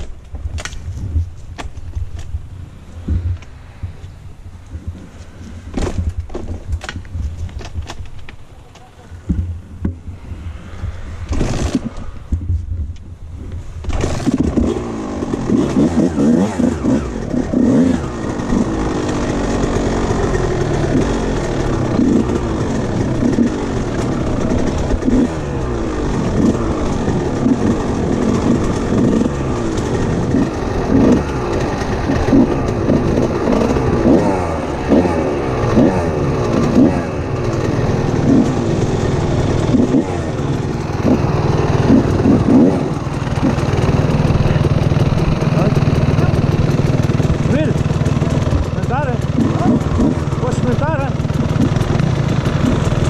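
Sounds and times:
low rumble: 9.2 - 15.6
dirt bike engine revving: 10.1 - 12.3, 13.8 - 53.0.

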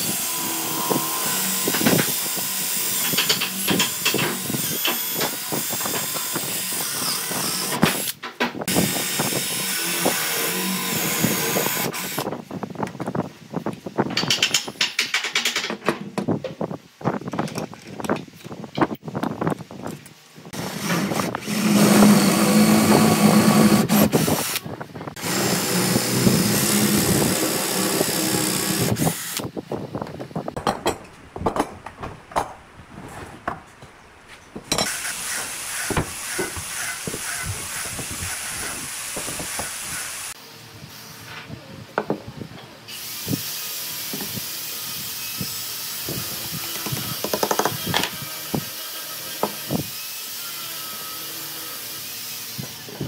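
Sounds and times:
cordless drill boring into wood: 0.0 - 12.2, 20.6 - 24.6, 25.2 - 29.5.

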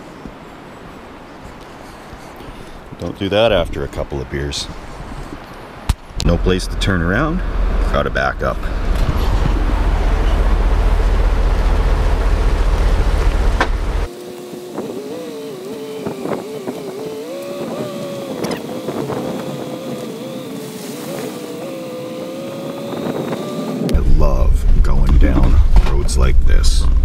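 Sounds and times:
wind rumble on microphone: 1.4 - 27.0
engine drone: 6.2 - 27.0.

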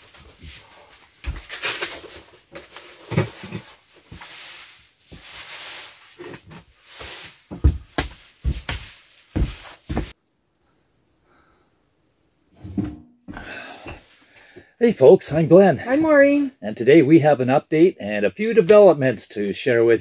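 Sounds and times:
jacket rustling: 0.0 - 10.2
knocks and thumps: 7.5 - 10.1, 12.6 - 14.1.

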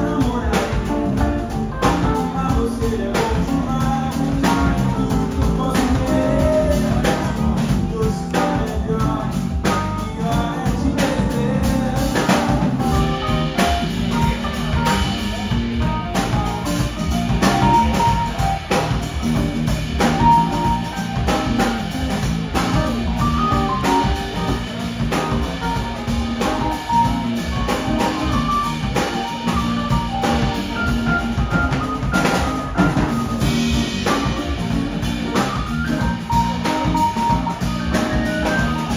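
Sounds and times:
drum kit beat: 0.0 - 38.9
electric bass: 0.0 - 38.9
electric guitar: 0.0 - 38.9.

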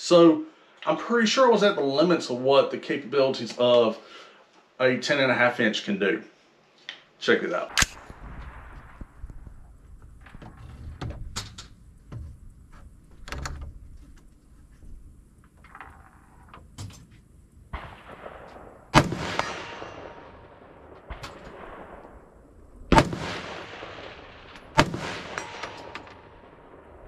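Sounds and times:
faint sharp cracks: 7.7 - 27.0
loud gunshots with echo: 17.7 - 22.3, 22.9 - 27.0.

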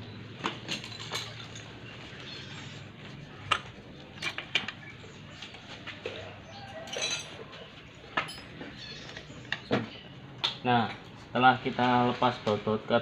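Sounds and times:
birds calling: 1.7 - 10.4
metallic tool clicks and clinks: 6.9 - 7.4.

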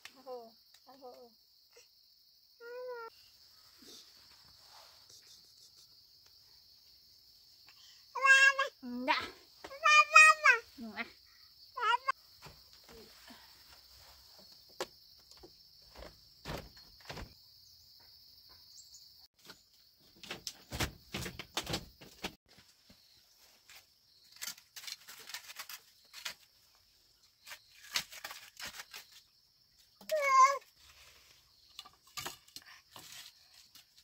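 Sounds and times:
wooden sticks clattering: 31.7 - 34.0.

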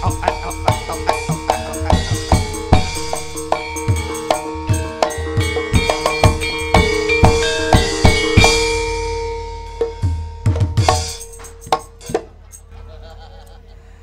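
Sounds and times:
sharp hand-drum strokes: 0.0 - 12.4
gamelan ensemble playing: 0.0 - 13.2.

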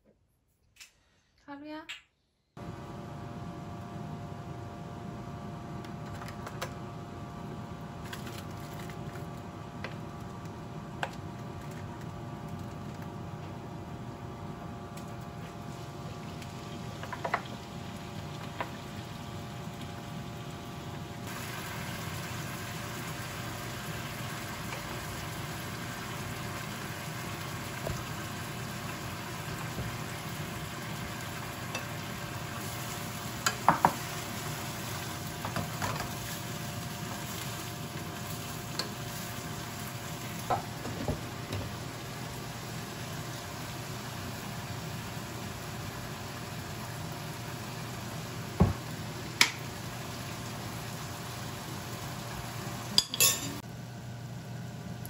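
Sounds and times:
food sizzling in a frying pan: 15.0 - 53.6.

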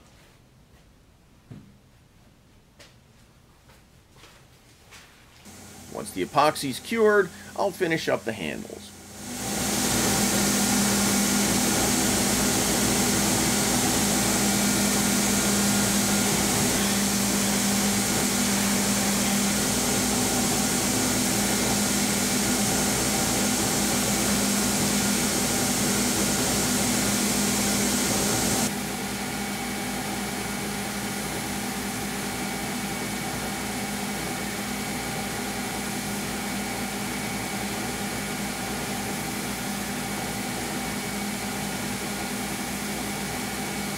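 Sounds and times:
belt grinder running: 5.5 - 33.6.

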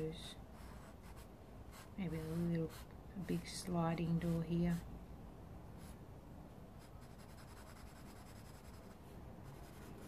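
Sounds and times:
pencil scratching on paper: 0.5 - 4.8, 6.8 - 10.0.

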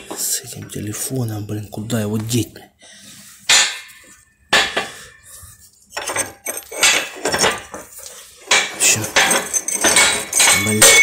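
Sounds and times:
steel tools clattering on metal: 5.9 - 11.0.

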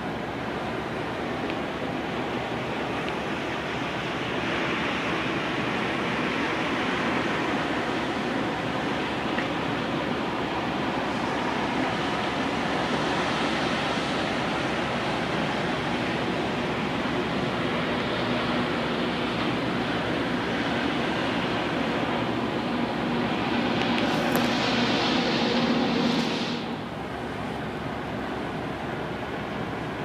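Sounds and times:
churning sea water: 0.0 - 30.0
wind rushing: 21.1 - 27.0.

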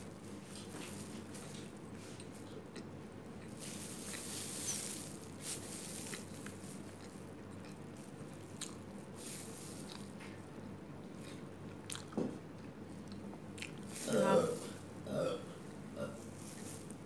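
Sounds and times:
plastic gloves crackling: 0.0 - 1.9, 3.4 - 10.3, 13.8 - 14.9, 16.0 - 17.0
chewing food: 0.6 - 9.0, 9.8 - 14.5
paper wrapper rustling: 3.5 - 7.1, 9.1 - 10.1.

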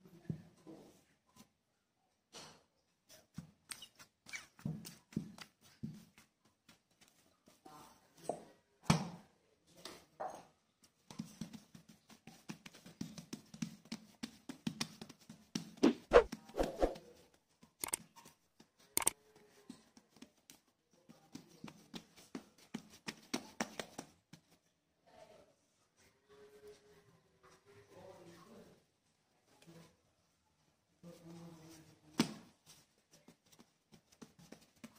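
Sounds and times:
hands patting dough: 3.2 - 7.7, 10.8 - 24.6, 31.6 - 34.9.

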